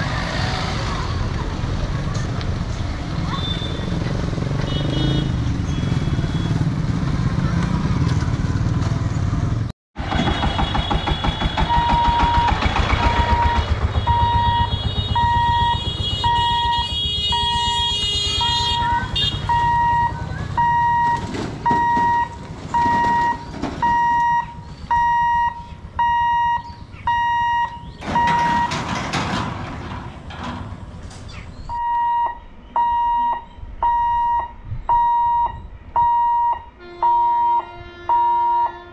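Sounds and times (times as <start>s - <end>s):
rumble of passing engines: 0.0s - 31.8s
crossing warning hooter beeping: 10.2s - 28.9s, 31.7s - 38.9s.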